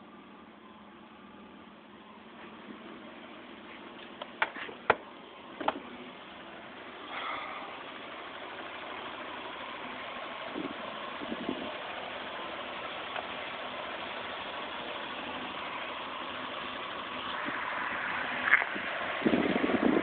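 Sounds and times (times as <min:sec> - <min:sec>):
car engine idling: 0:00.0 - 0:20.0
engine knocks: 0:03.7 - 0:06.0, 0:07.0 - 0:20.0.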